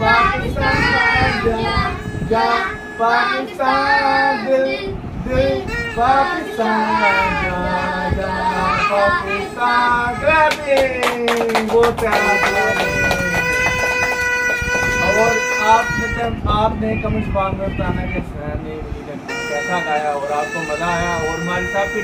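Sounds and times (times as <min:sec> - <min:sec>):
children singing: 0:00.0 - 0:10.5
hand claps: 0:10.5 - 0:15.3
plastic toy horn: 0:12.1 - 0:16.2, 0:19.3 - 0:22.0.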